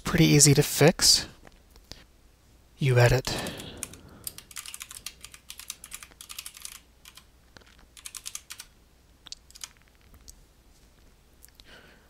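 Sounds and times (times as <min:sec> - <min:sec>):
typing on computer keyboard: 0:03.2 - 0:07.3, 0:07.9 - 0:08.7, 0:09.5 - 0:09.9.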